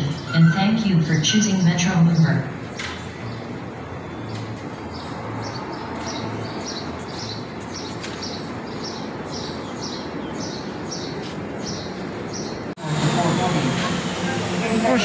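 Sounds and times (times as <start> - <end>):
bird chirping: 2.0 - 12.7.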